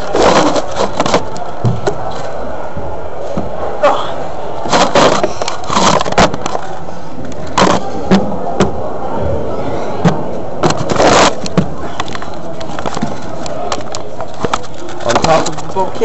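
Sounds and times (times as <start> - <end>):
handling scrape: 0.0 - 1.5, 4.6 - 8.0, 10.6 - 15.8.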